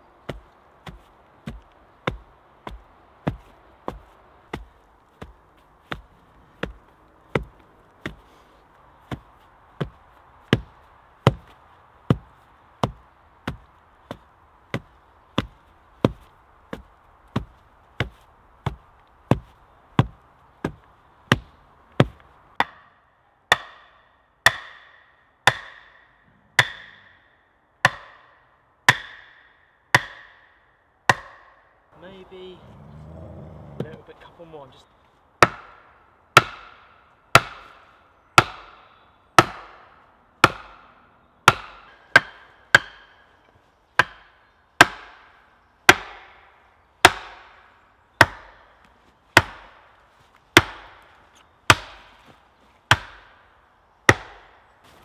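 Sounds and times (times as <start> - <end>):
bar tamping soil thuds: 0.2 - 8.4, 9.0 - 22.8, 33.2 - 34.3
axe striking log: 0.3 - 8.2, 9.8 - 16.2, 16.8 - 27.2, 27.8 - 31.6, 35.4 - 37.8, 38.4 - 40.9, 41.5 - 43.2, 44.0 - 45.3, 45.9 - 46.4, 47.0 - 47.6, 48.2 - 48.6, 49.4 - 49.8, 50.6 - 51.1, 51.7 - 52.3, 52.9 - 53.4, 54.1 - 54.6.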